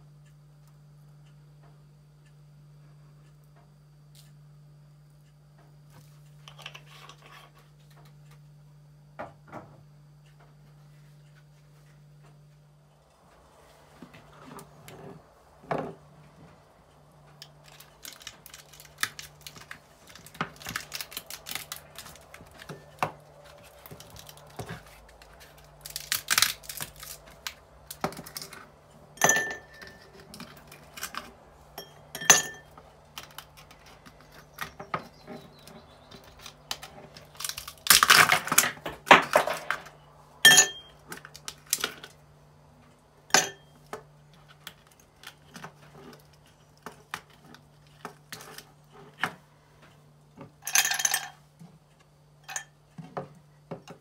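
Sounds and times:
low hum: 0.0 - 53.7
ice cube tray cracking: 17.4 - 23.0, 23.7 - 28.7, 36.0 - 39.9.

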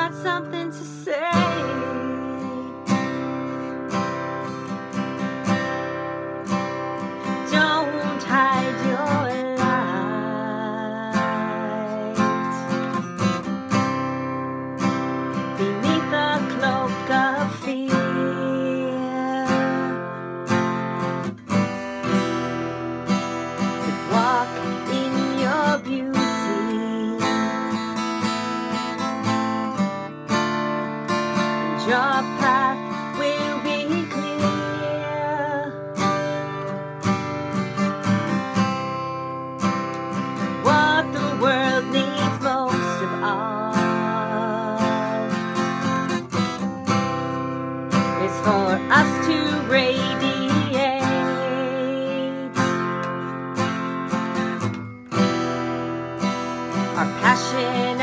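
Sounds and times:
woman singing: 0.0 - 3.6, 7.2 - 13.0, 15.4 - 20.3, 23.8 - 28.0, 31.4 - 36.6, 40.4 - 45.9, 47.9 - 53.1, 56.8 - 58.0
acoustic guitar strumming: 0.0 - 58.0.

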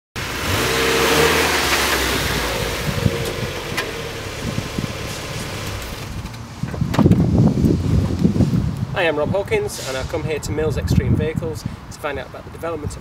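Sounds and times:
car engine: 0.2 - 8.6
tyres rolling on asphalt: 0.2 - 8.6.

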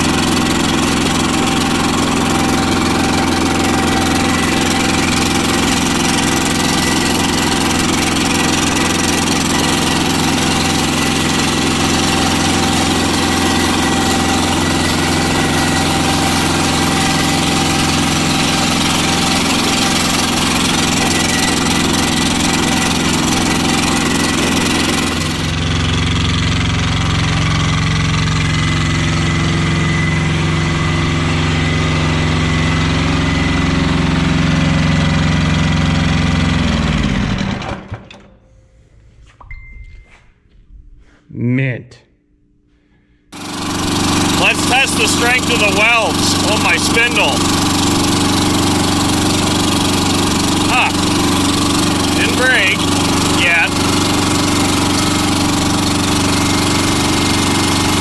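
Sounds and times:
diesel tractor engine running: 0.0 - 38.0, 43.3 - 58.0.

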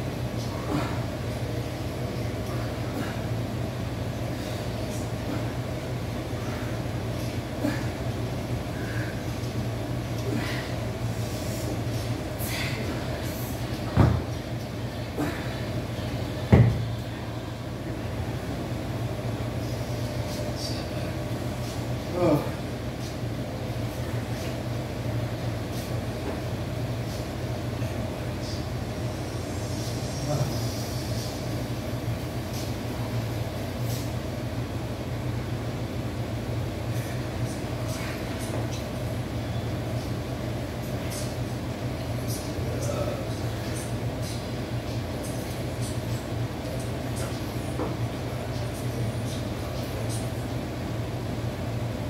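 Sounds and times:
steady low hum: 0.0 - 52.0
dumbbells thudding down: 13.9 - 14.3, 16.5 - 16.8.

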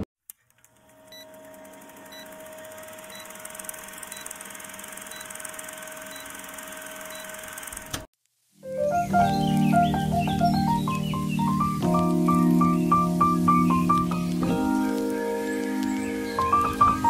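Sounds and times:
film projector whirring: 0.5 - 8.1.

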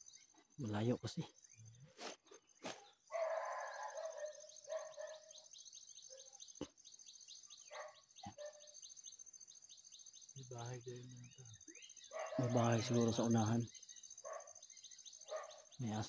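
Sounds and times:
high insect drone: 0.0 - 16.0
distant dog barking: 3.1 - 5.4, 7.7 - 8.8, 12.1 - 13.3, 14.2 - 14.6, 15.2 - 15.8.

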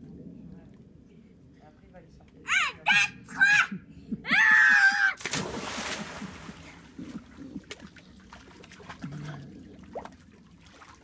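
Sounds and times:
loud splash into pool: 5.2 - 6.8
splashing and lapping water: 5.2 - 11.0.

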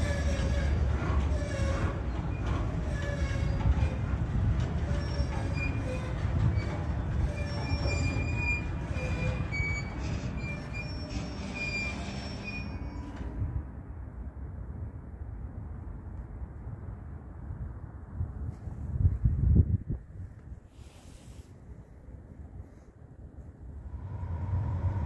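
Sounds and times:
train brakes squealing: 0.0 - 4.1, 4.8 - 13.3
rumble of rolling train cars: 0.0 - 25.0.

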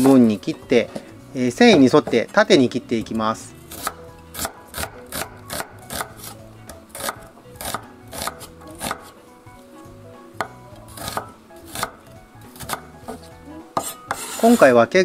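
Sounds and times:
knife chopping on a wooden board: 3.7 - 9.2, 10.4 - 12.0, 12.6 - 14.5.

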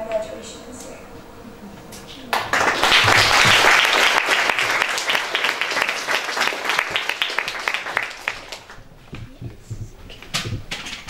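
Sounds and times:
audience applauding: 2.3 - 8.9.

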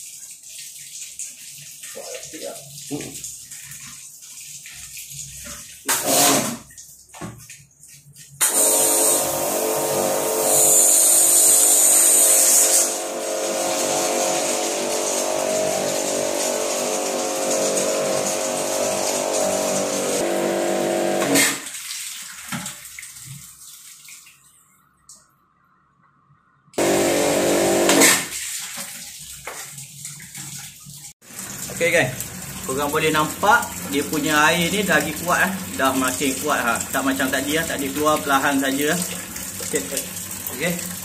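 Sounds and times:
pressure washer spraying water: 8.4 - 21.6, 26.8 - 28.4.

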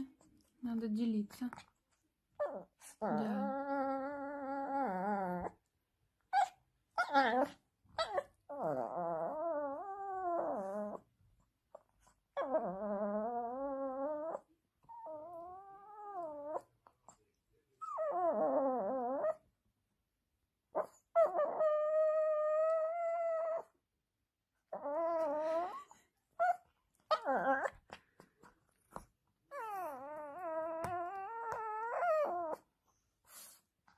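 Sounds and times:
small dog growl-whining: 2.4 - 5.7, 6.3 - 19.5, 20.7 - 23.8, 24.6 - 28.0, 29.5 - 32.7.

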